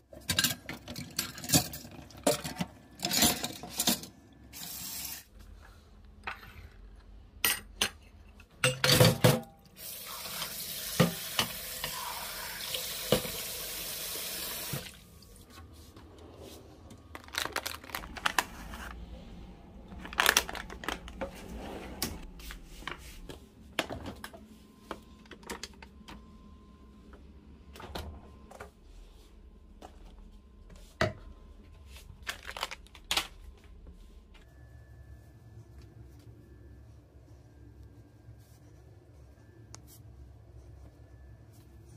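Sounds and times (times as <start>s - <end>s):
kitchen tap running: 9.8s - 15.0s
wet wipes pack rustling: 17.1s - 19.1s, 19.9s - 21.2s, 32.1s - 33.4s.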